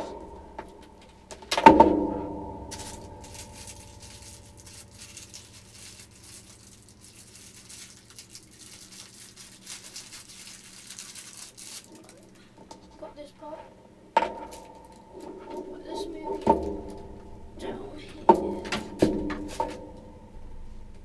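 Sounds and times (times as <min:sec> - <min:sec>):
plastic wrapping rustling: 0:02.6 - 0:13.0, 0:14.3 - 0:17.6, 0:18.2 - 0:20.0.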